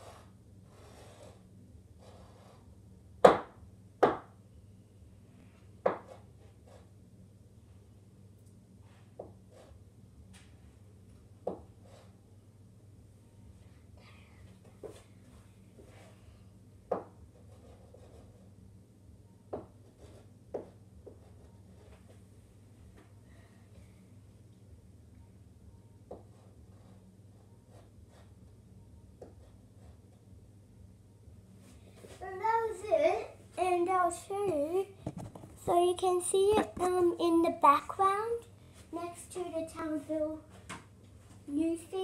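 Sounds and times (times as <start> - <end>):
chalk scratching on board: 0.0 - 1.4, 2.0 - 2.7
chalk knocking on board: 5.8 - 6.2
chalk knocking on chalkboard: 5.8 - 6.8, 9.1 - 9.7, 16.9 - 18.4, 19.5 - 21.9, 26.1 - 26.5.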